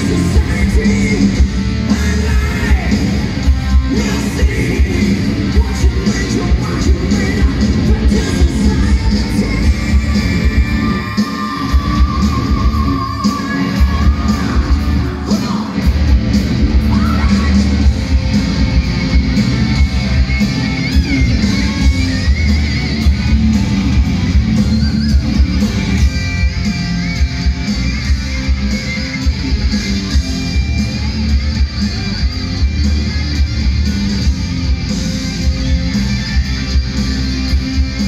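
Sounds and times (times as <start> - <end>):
person singing: 0.0 - 15.8
bass guitar: 0.0 - 38.0
distorted electric guitars: 0.0 - 38.0
drums: 0.0 - 38.0.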